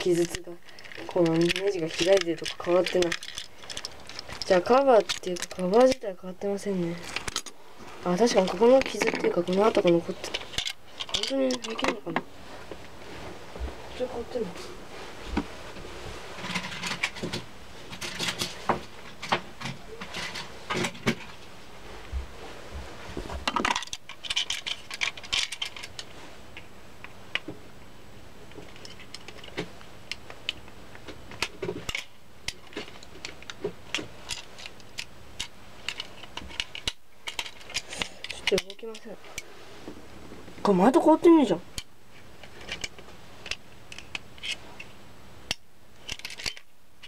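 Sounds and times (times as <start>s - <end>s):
rustling: 0.0s - 26.7s
plastic toy parts clicking: 0.1s - 6.0s, 8.4s - 12.1s, 23.6s - 26.1s, 28.7s - 30.6s, 34.3s - 39.1s, 42.5s - 44.6s, 45.5s - 46.7s.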